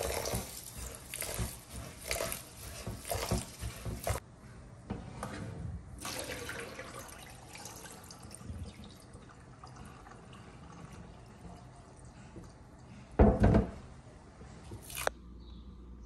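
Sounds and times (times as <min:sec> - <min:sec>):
water pouring into a steel sink: 0:06.0 - 0:11.4.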